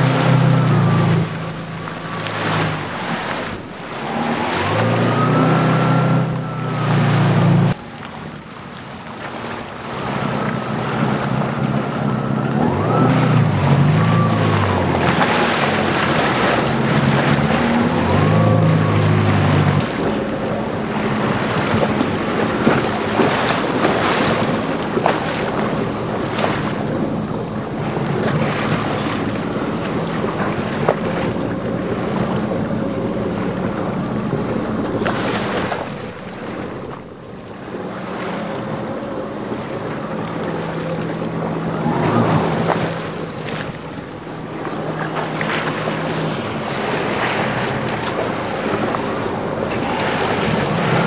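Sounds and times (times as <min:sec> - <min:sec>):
water rushing off hull: 0:00.0 - 0:51.0
watercraft engine running: 0:00.0 - 0:51.0
wind buffeting microphone: 0:00.0 - 0:51.0.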